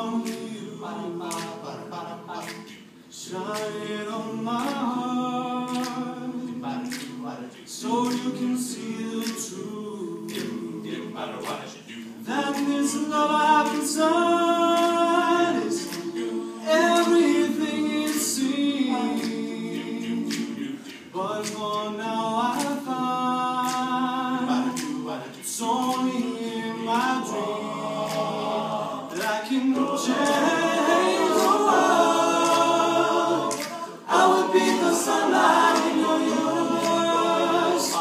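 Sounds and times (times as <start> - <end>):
male a cappella group singing: 0.0 - 38.0
vocal percussion beat: 0.0 - 38.0.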